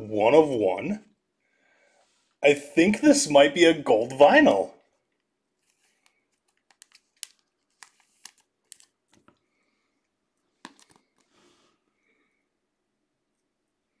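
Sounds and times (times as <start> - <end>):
plastic sleeve crinkling and clicks: 5.1 - 9.4, 10.6 - 11.3.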